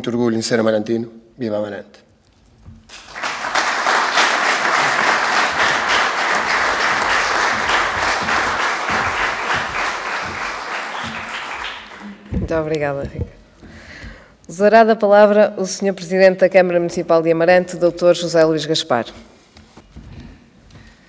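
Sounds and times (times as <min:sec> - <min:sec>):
audience applauding: 0:02.9 - 0:12.3.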